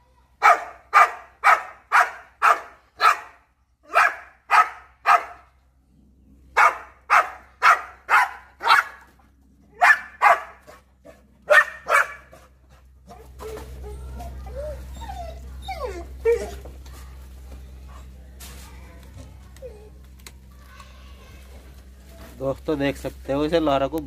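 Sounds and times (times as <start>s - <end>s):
dog barking: 0.4s - 5.4s, 6.6s - 9.1s, 9.8s - 10.8s, 11.5s - 12.4s
dog whining: 13.1s - 16.7s, 19.6s - 20.1s.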